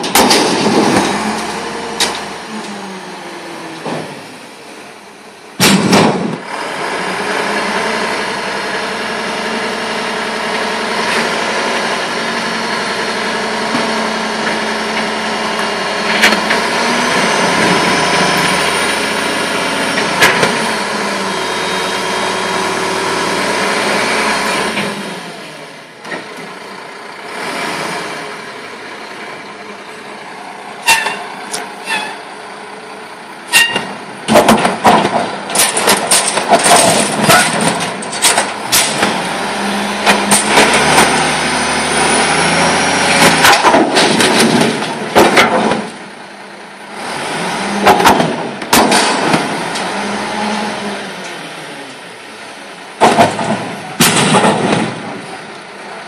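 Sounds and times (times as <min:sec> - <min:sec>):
metal dumpster bang: 0:00.0 - 0:02.4, 0:05.6 - 0:06.5, 0:33.5 - 0:41.5, 0:43.2 - 0:45.9, 0:47.8 - 0:49.7, 0:53.0 - 0:55.4
diesel truck engine running: 0:00.0 - 0:56.0.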